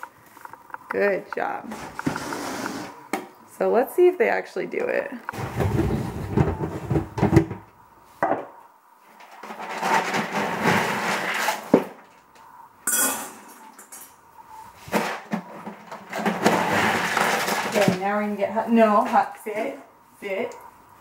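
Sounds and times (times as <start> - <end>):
clinks against bowl: 12.9 - 13.4.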